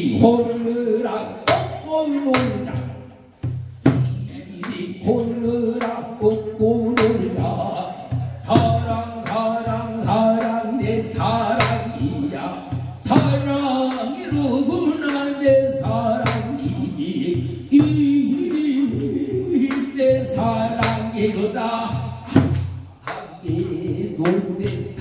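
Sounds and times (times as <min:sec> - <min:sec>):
man singing through a microphone: 0:00.0 - 0:03.3, 0:03.9 - 0:25.0
barrel drum strokes: 0:01.5 - 0:24.4.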